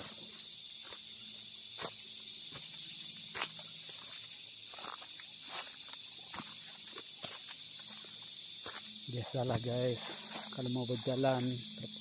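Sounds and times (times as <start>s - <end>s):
footsteps on dry leaves: 0.0s - 11.6s
forest insects droning: 0.0s - 12.0s.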